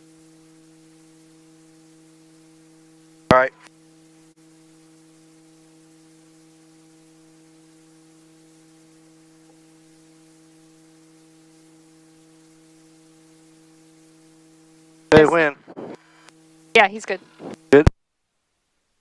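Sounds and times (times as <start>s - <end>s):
electrical hum on intercom: 3.2s - 3.7s, 15.0s - 17.9s.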